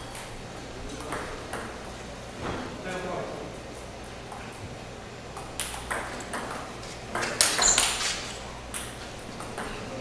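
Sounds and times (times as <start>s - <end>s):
ping-pong ball clicking: 5.4s - 8.0s.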